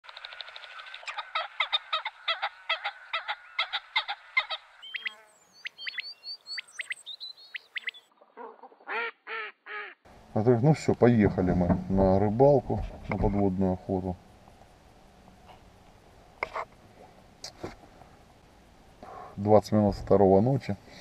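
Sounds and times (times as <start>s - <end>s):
geese honking: 0.4s - 5.2s
thin sliding whistled bird calls: 4.8s - 8.1s.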